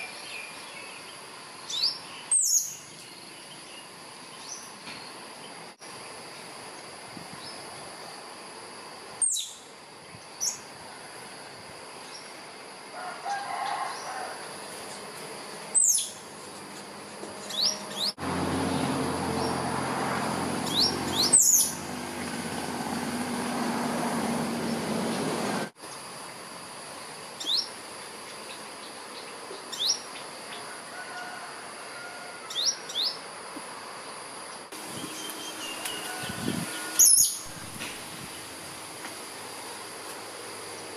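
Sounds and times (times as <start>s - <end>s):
high insect drone: 0.0s - 40.9s
squirrel calling: 20.6s - 21.8s, 35.0s - 37.5s.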